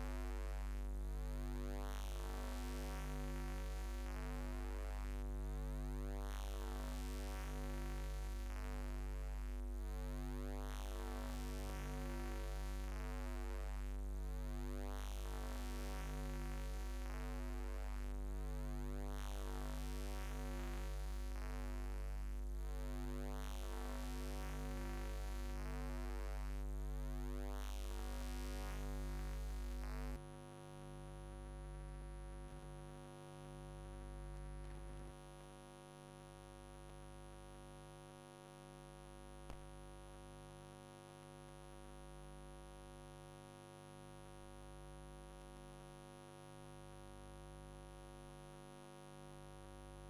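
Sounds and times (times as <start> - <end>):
electrical hum with high whine: 0.0 - 50.0.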